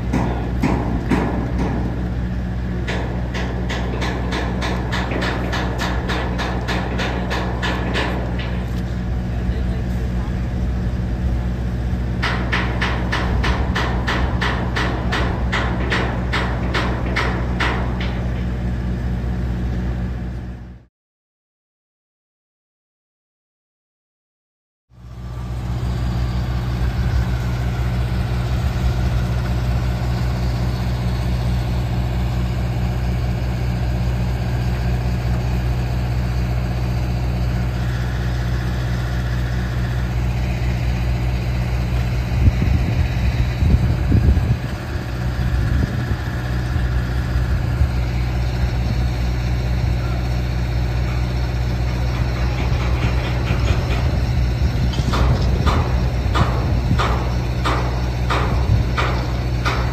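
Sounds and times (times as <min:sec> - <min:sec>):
heavy machinery engine idling: 0:00.0 - 0:20.9, 0:24.9 - 0:59.9
knocks and clatter: 0:00.1 - 0:02.0, 0:02.8 - 0:08.8, 0:12.2 - 0:18.6, 0:51.8 - 0:59.9.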